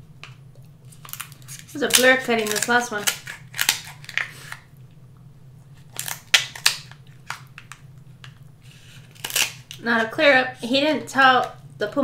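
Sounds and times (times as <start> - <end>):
shears cutting crab shell: 1.0 - 4.6, 8.7 - 9.8.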